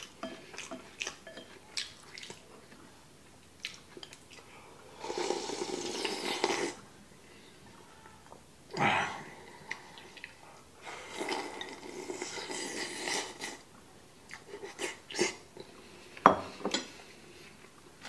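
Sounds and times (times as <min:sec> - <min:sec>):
person slurping soup: 0:04.9 - 0:06.8, 0:11.0 - 0:13.6.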